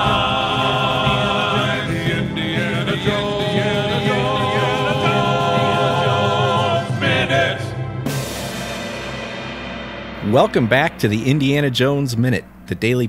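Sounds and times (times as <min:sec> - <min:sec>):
voices singing in harmony: 0:00.0 - 0:08.5.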